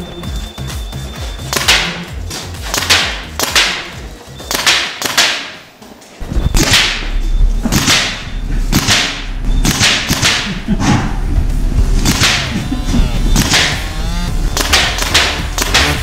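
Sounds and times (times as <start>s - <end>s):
paintball marker firing: 1.4s - 5.7s, 6.6s - 11.0s, 12.0s - 12.7s, 13.3s - 16.0s.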